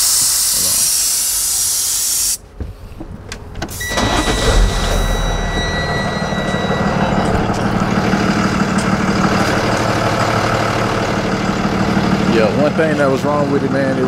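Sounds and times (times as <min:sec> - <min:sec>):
truck engine idling: 0:03.2 - 0:14.0
thin high tone: 0:03.8 - 0:09.4.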